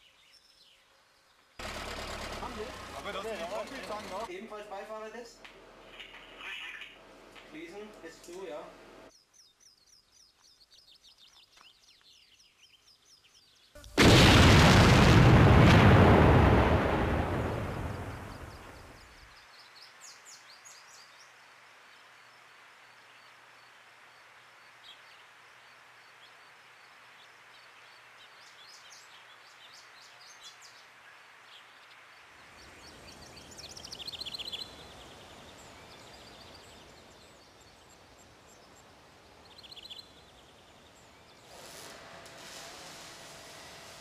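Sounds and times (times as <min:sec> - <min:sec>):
birds chirping: 0:00.0 - 0:14.0, 0:17.5 - 0:41.8
faint outdoor hiss: 0:00.0 - 0:44.0
blast rumble: 0:13.9 - 0:19.0.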